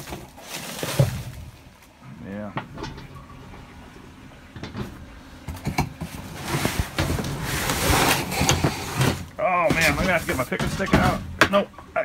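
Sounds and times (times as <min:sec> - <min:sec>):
cardboard boxes dragged and shifted: 0:00.0 - 0:01.6, 0:06.0 - 0:11.2
scraping and rustling: 0:00.0 - 0:02.0, 0:04.5 - 0:11.7
knocks in dumpster: 0:09.0 - 0:11.7.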